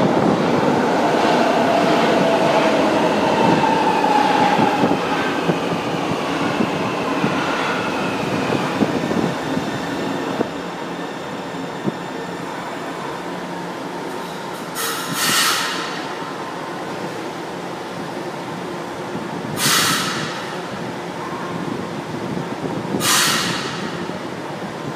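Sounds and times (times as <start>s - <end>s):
train braking to a stop: 14.1s - 16.1s, 19.6s - 20.6s, 23.0s - 24.1s
air hiss: 14.8s - 15.9s, 19.6s - 20.4s.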